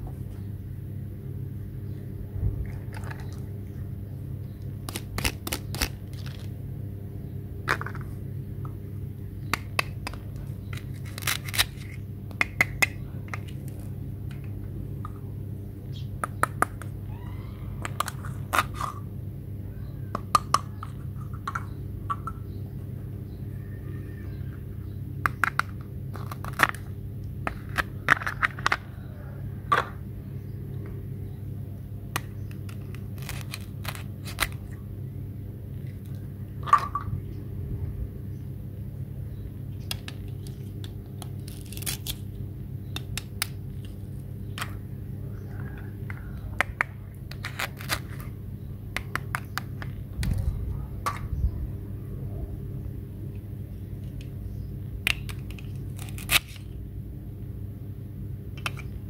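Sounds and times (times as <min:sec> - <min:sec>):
low hum: 0:00.0 - 0:59.0.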